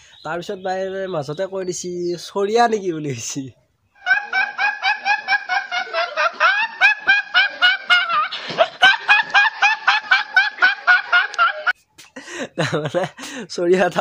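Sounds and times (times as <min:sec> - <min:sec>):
boy laughing: 0:04.0 - 0:13.4
gasp for breath: 0:13.2 - 0:13.5.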